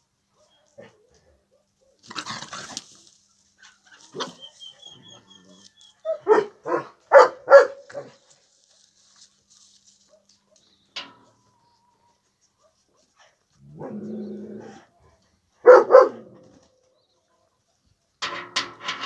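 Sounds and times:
rustle: 0.1 - 6.1, 7.8 - 15.6
dog barking: 6.1 - 8.2, 10.1 - 10.7, 15.0 - 16.4.

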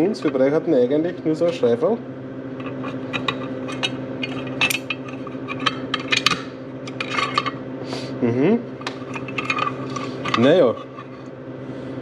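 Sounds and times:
low machine hum: 0.0 - 12.0
small metal parts clinking: 2.6 - 7.6, 9.0 - 11.2.

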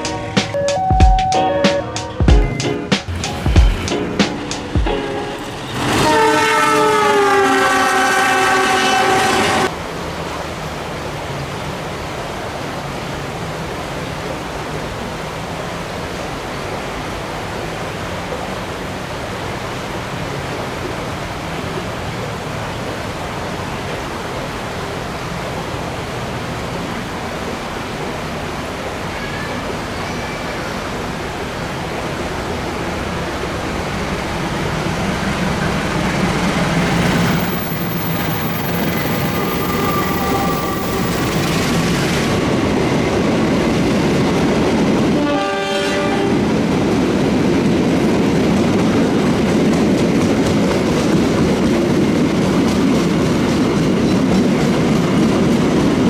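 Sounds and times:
train rushing noise: 0.0 - 56.0
locomotive engine low hum: 30.8 - 41.2.

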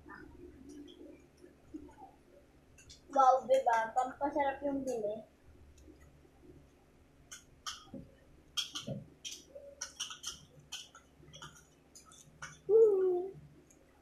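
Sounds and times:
plastic spoons clicking in paper cups: 8.6 - 12.6.

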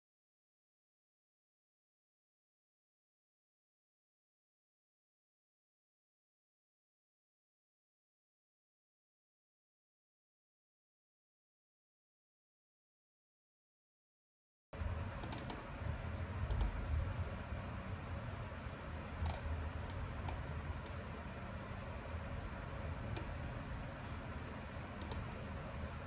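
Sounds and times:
low room hum: 14.8 - 26.0
computer mouse clicking: 15.2 - 15.7, 16.5 - 16.8, 19.2 - 21.0, 23.1 - 23.4, 25.0 - 25.5.

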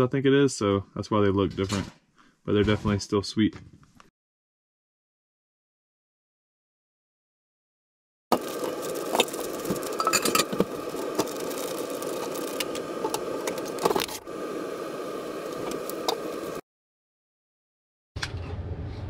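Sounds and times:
steady background hum: 8.3 - 16.6
plastic bag rustling: 8.4 - 14.3.

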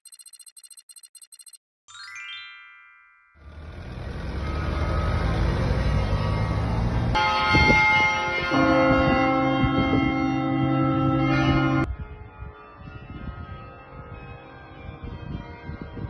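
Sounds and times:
deeper bells: 2.7 - 16.0
large church bells ringing: 7.1 - 16.0.

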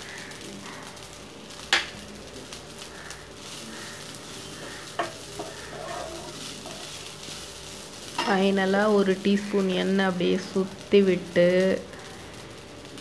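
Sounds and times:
hot oil sizzling: 0.0 - 13.0
wooden spatula stirring in pan: 0.1 - 9.7
spatula knocking against pan: 5.0 - 6.8.

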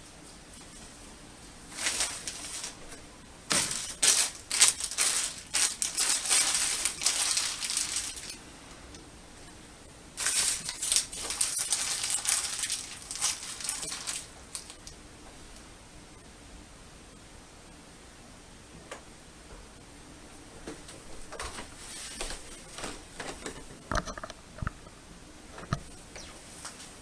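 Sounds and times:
crinkling handling noise: 0.2 - 9.5, 10.2 - 15.5, 20.6 - 27.0.

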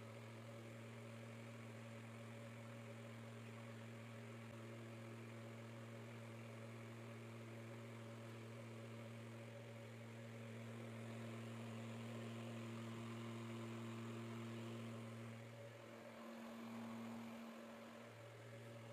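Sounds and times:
small fan motor humming: 0.0 - 18.9.

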